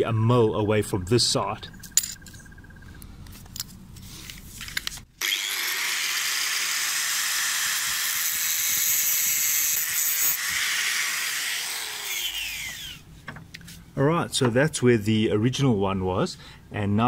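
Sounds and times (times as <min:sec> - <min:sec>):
angle grinder cutting steel: 0:05.2 - 0:13.0.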